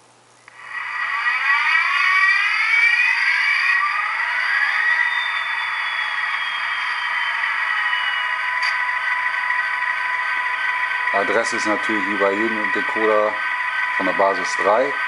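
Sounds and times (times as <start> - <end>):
high whine falling in pitch: 0.5 - 15.0.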